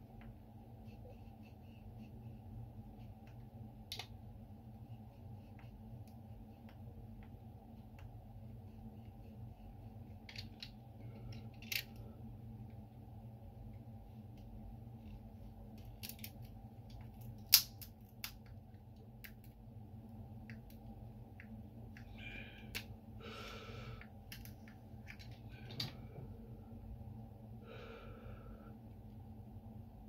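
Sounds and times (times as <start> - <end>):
plastic clicks and snaps: 15.8 - 19.6.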